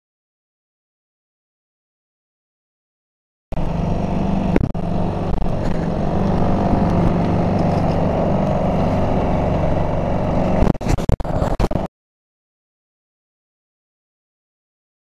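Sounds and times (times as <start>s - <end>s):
ferry engines running: 3.5s - 11.9s
water rushing: 3.6s - 11.8s
wind rushing: 3.6s - 11.9s.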